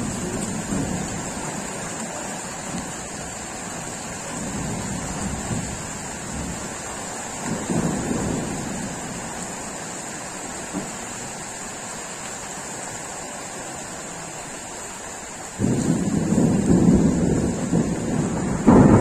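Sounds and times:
thunder rumbling: 0.0s - 9.7s, 15.6s - 19.0s
steady rain: 0.0s - 19.0s.

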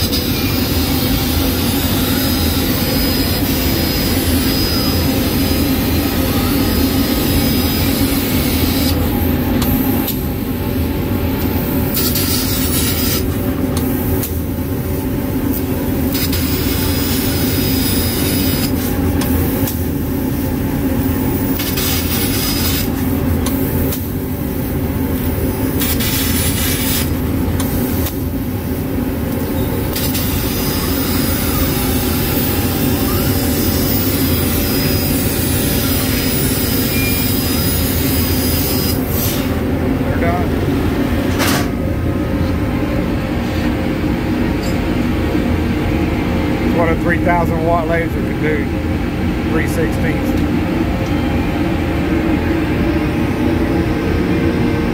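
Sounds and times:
laser cutter hum: 0.0s - 54.9s
hiss of laser cutting: 21.5s - 23.0s.

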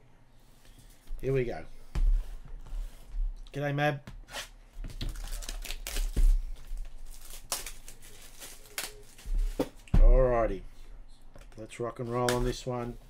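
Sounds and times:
wrapping rustling and crinkling: 4.8s - 9.8s.

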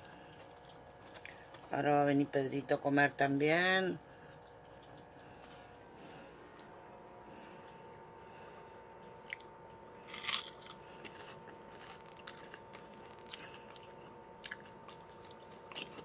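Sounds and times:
crunchy snack crunching: 0.0s - 1.8s, 9.2s - 16.0s.

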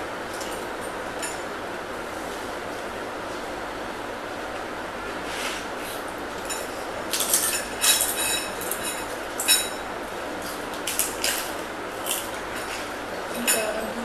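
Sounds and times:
metal spoons clinking on bowls: 6.4s - 9.8s, 12.1s - 14.0s.

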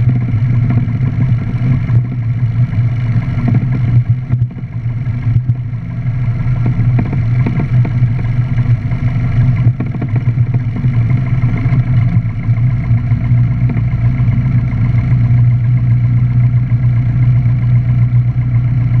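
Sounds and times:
rattles and knocks: 0.0s - 16.6s
light aircraft engine and propeller: 0.0s - 19.0s.

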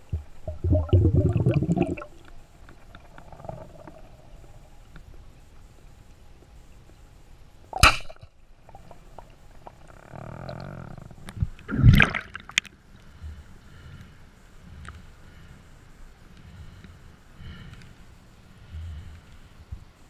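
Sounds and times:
speargun firing crack: 7.8s - 8.2s.

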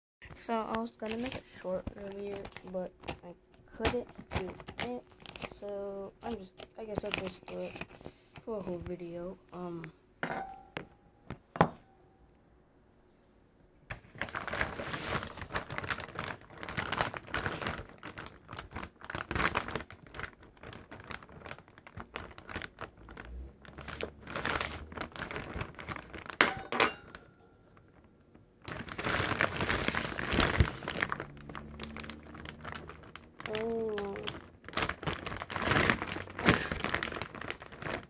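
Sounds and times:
plastic bag crinkling: 0.3s - 9.4s, 13.9s - 38.0s.

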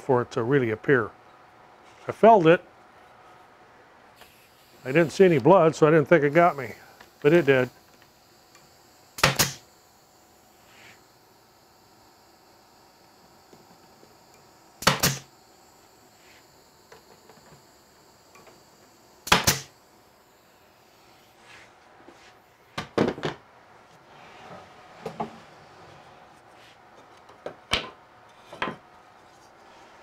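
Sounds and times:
nail gun firing: 9.2s - 9.6s, 14.8s - 15.3s, 19.2s - 19.7s.

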